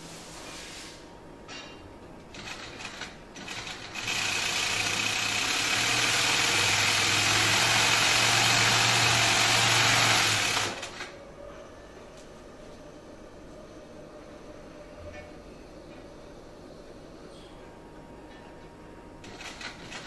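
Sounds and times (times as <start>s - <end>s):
sewing machine stitching: 2.4s - 11.1s, 19.2s - 20.0s.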